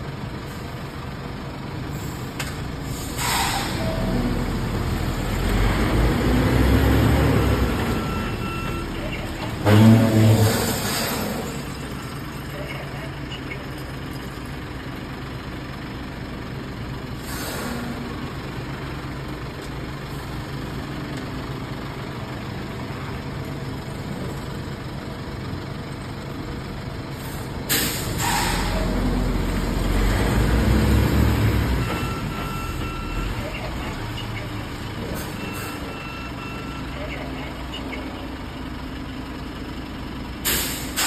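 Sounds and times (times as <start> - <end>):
diesel truck engine running: 0.0 - 41.0
air brake release hiss: 2.0 - 3.9, 17.2 - 18.0, 27.2 - 28.8, 40.4 - 41.0.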